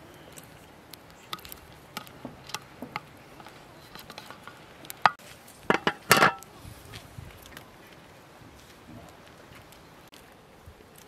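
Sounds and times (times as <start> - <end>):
metal cookware clanking: 2.0 - 6.4
lid going onto pot: 5.0 - 6.4.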